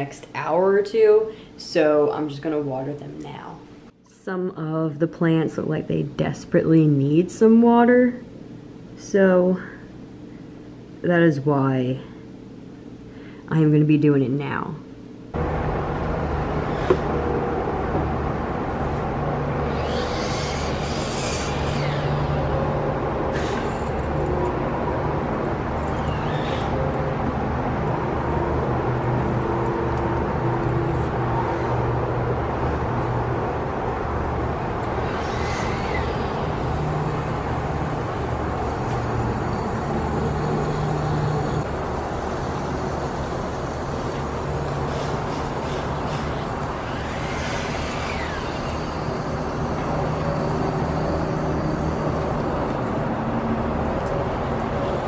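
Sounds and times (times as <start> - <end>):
low machine drone: 15.3 - 55.0.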